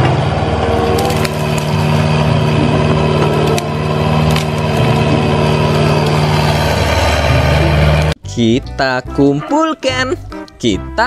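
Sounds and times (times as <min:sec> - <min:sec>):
diesel engine running: 0:00.0 - 0:08.2
wood snapping: 0:00.9 - 0:02.0, 0:02.8 - 0:06.2.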